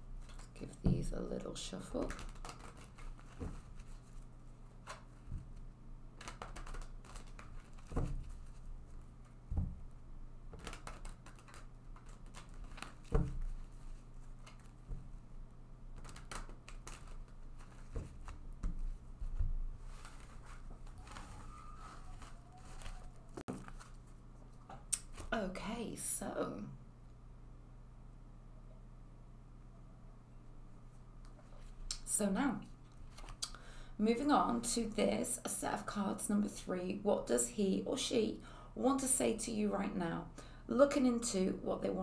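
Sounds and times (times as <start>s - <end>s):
cards being shuffled: 2.0s - 4.2s, 6.2s - 9.4s, 10.5s - 15.0s, 15.9s - 24.2s, 33.0s - 33.4s.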